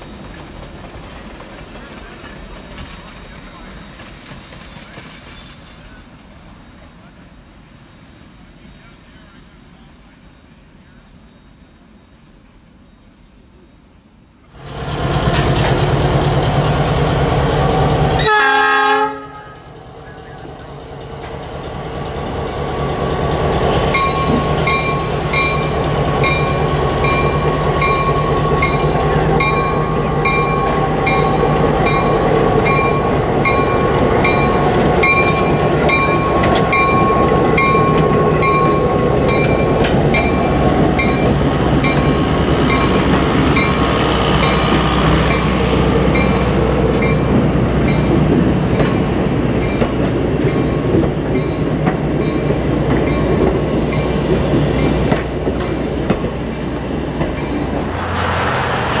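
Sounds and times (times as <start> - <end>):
wheels clattering on rails: 0.0 - 6.6, 14.6 - 18.3, 20.0 - 59.0
diesel locomotive engine rumble: 0.0 - 59.0
locomotive bell ringing: 23.9 - 55.0.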